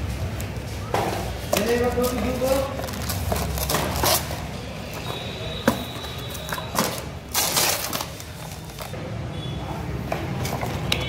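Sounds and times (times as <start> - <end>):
plastic packaging crinkling: 1.5 - 5.0, 5.9 - 9.0.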